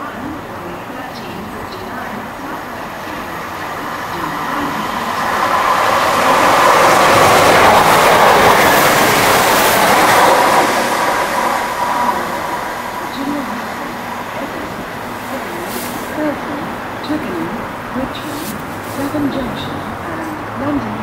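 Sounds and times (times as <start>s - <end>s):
diesel train passing: 0.0s - 21.0s.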